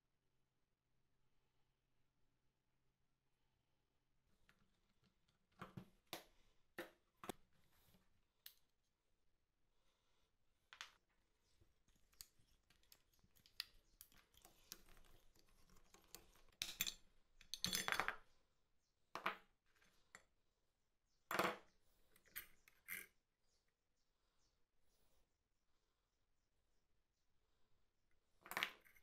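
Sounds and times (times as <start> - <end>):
metal parts clicking and clinking: 12.0 - 18.1.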